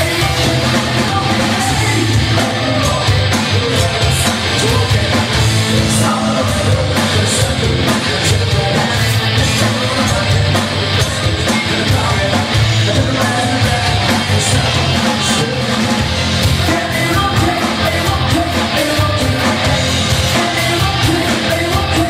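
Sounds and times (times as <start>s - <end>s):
bass guitar: 0.0s - 22.0s
drums: 0.0s - 22.0s
electric guitar: 0.0s - 22.0s
person singing: 0.0s - 22.0s.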